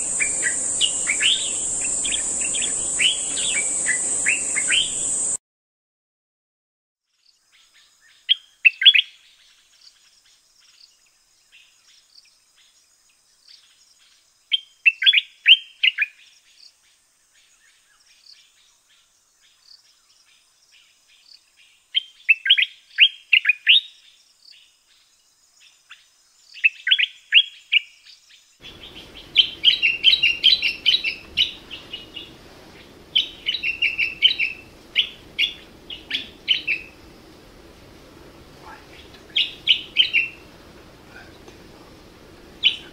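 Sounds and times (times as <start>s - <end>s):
bird chattering song: 0.0s - 5.4s, 28.6s - 37.2s, 38.6s - 40.5s, 41.1s - 42.9s
light background hiss: 0.0s - 5.4s, 7.2s - 42.9s.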